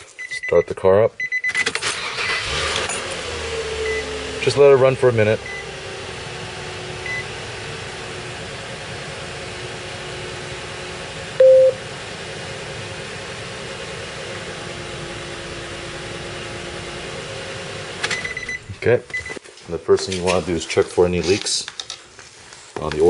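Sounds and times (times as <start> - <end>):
car engine idling: 1.9 - 19.1
faint high beep: 11.4 - 11.8
loud short beep: 11.4 - 11.8.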